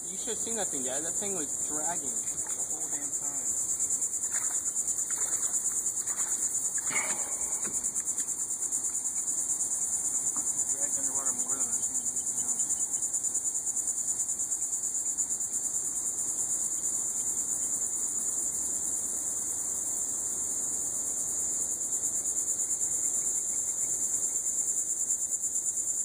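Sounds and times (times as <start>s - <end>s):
insects buzzing in pulses: 0.0s - 26.0s.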